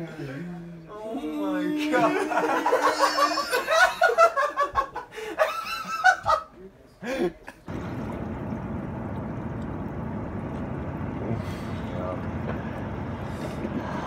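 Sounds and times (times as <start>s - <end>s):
men laughing and exclaiming: 1.6s - 7.3s
outdoor rushing noise: 7.7s - 14.0s.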